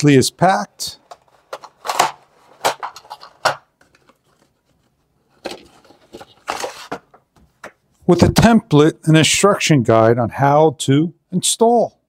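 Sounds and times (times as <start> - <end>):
paper rustling: 1.0 - 7.2.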